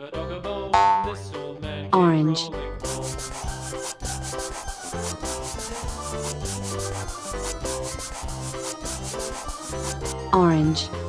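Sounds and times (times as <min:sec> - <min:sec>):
crayon scribbling strokes: 0:02.8 - 0:10.3.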